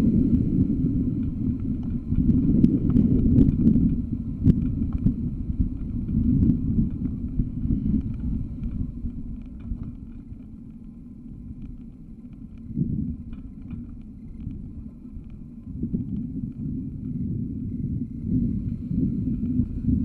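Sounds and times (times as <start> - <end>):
car engine and road noise: 0.0 - 20.0
wind buffeting microphone: 0.0 - 20.0.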